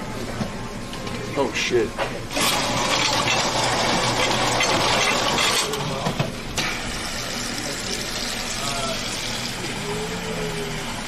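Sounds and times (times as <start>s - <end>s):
soda fountain pouring: 2.3s - 5.9s, 6.7s - 11.0s.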